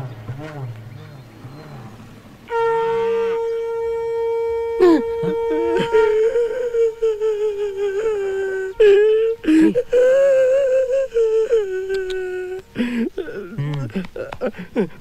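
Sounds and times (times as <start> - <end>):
high wind instrument note: 2.4 - 6.8
man comic wailing and sobbing: 4.8 - 15.0.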